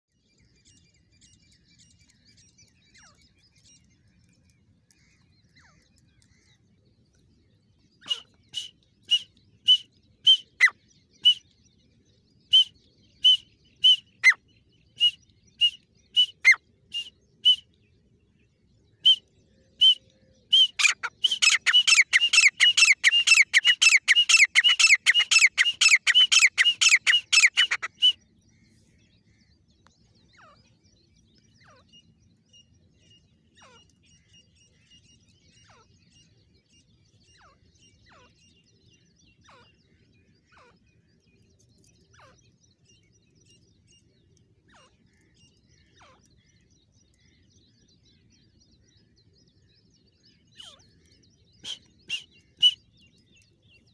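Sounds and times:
francolin calling: 0:08.0 - 0:11.5, 0:19.0 - 0:28.2, 0:51.6 - 0:53.2.

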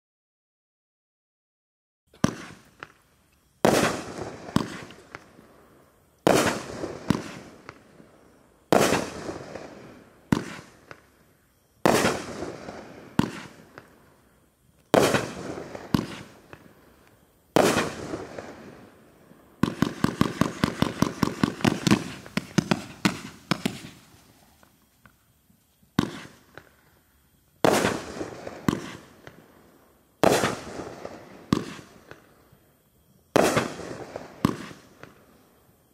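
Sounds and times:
firework bangs: 0:02.1 - 0:03.0, 0:03.6 - 0:05.6, 0:06.2 - 0:11.1, 0:11.8 - 0:14.0, 0:14.9 - 0:25.2, 0:25.9 - 0:26.9, 0:27.6 - 0:32.3, 0:33.3 - 0:35.2
rapid firework pops: 0:02.1 - 0:05.4, 0:06.2 - 0:07.9, 0:08.7 - 0:09.7, 0:10.3 - 0:11.1, 0:11.8 - 0:14.0, 0:14.8 - 0:16.7, 0:17.6 - 0:18.6, 0:19.6 - 0:25.2, 0:25.9 - 0:26.8, 0:27.6 - 0:29.4, 0:30.2 - 0:32.2, 0:33.4 - 0:35.2.

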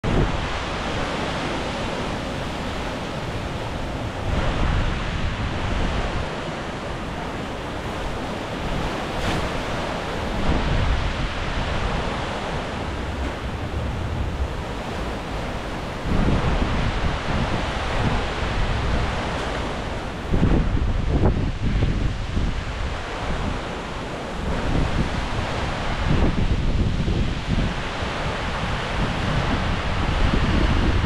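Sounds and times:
wind buffeting microphone: 0:00.0 - 0:31.0
wind gusting through palm trees: 0:00.0 - 0:31.0.

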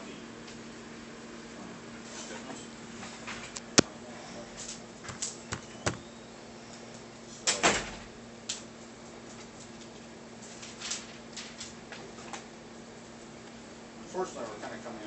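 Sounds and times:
hand knocking on tablet: 0:05.1 - 0:06.0.

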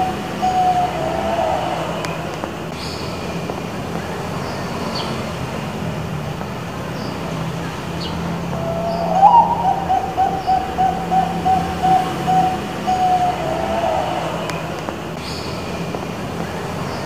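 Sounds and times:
dove cooing: 0:08.4 - 0:14.4
faint high chirps: 0:08.5 - 0:14.3.

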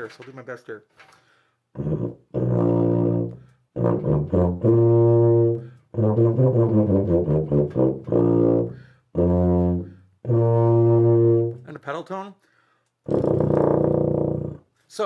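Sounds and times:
player breathing: 0:01.1 - 0:01.7, 0:08.7 - 0:09.1, 0:12.4 - 0:13.0
tuba low held notes: 0:01.7 - 0:11.8, 0:13.1 - 0:14.7.

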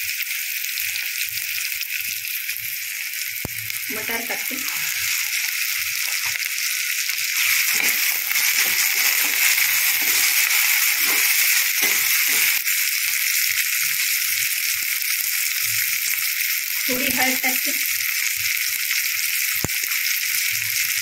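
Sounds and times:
vegetables sizzling in oil: 0:00.0 - 0:21.0
spatula stirring: 0:07.4 - 0:12.6.

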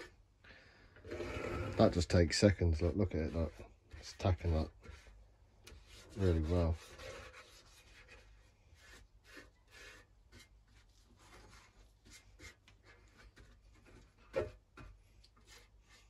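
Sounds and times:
scratchy brush strokes on metal: 0:05.8 - 0:12.6.

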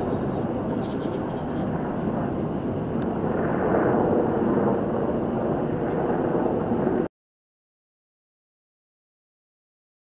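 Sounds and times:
helicopter rotor and turbine noise: 0:00.0 - 0:07.1.

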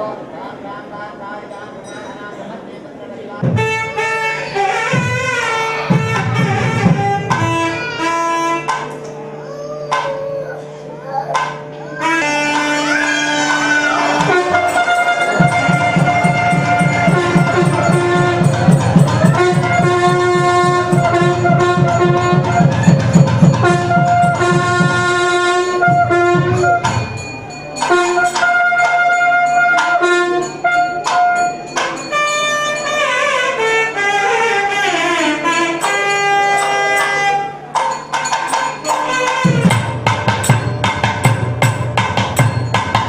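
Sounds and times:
drums: 0:03.4 - 0:08.9, 0:11.4 - 0:29.0, 0:37.7 - 0:43.0
reed wind instrument melody: 0:03.4 - 0:43.0.

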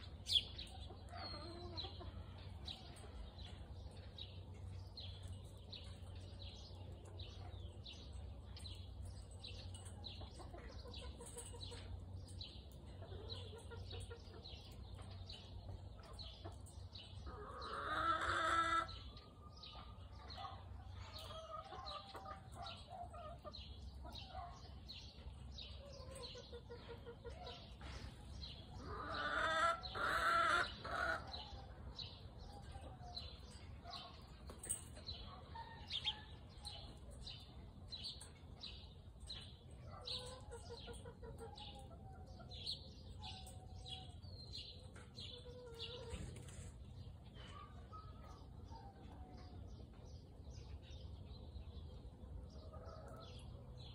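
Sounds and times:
chickens clucking: 0:00.0 - 0:53.9.

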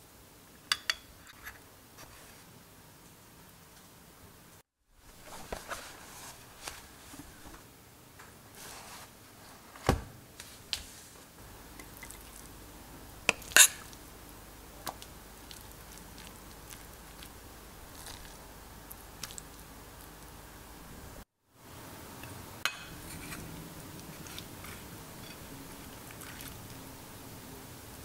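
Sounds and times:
spoon in ceramic baking dish: 0:13.3 - 0:14.0, 0:22.2 - 0:23.5
spoon clinking ceramic bowl: 0:22.7 - 0:23.0.

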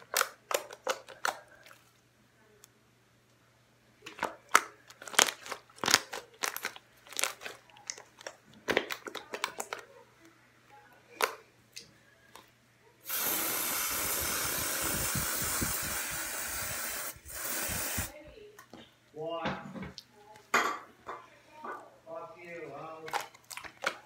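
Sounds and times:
slime crackling and popping: 0:04.1 - 0:09.8
aerosol can spraying: 0:13.0 - 0:18.1.

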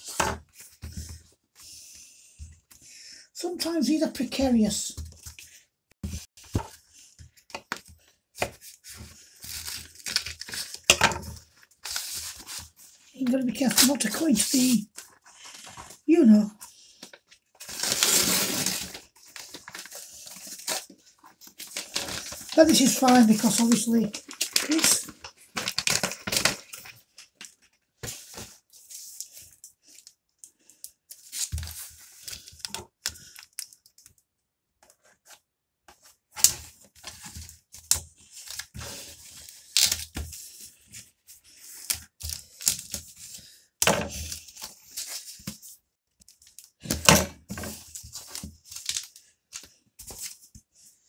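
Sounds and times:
plastic mailer bag tearing: 0:17.6 - 0:20.8, 0:21.6 - 0:26.8.

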